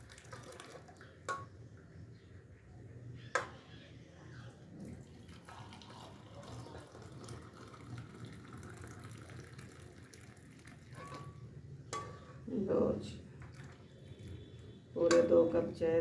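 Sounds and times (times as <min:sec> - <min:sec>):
tea pouring into a mug: 0:00.0 - 0:01.3, 0:04.7 - 0:11.5, 0:13.4 - 0:14.8.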